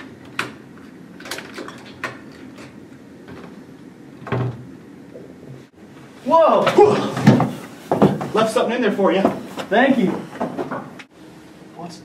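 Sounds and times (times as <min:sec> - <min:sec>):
locker latches clicking and rattling: 0:00.0 - 0:02.8.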